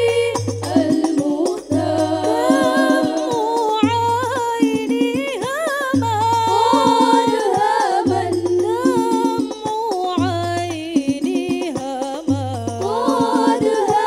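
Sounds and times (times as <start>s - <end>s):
hand-struck frame drums: 0.0s - 14.0s
women singing devotional melody: 0.0s - 14.0s.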